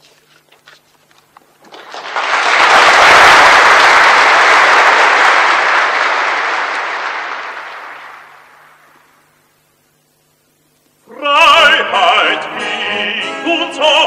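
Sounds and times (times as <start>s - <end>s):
audience applause: 1.6s - 9.0s.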